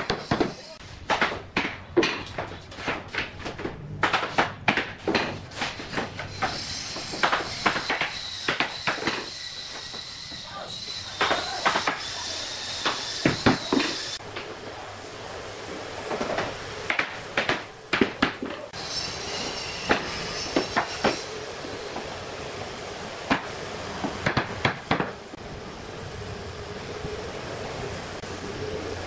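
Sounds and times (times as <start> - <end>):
floorboards knocking and clacking: 0.0 - 6.2
steady background hum: 0.0 - 29.0.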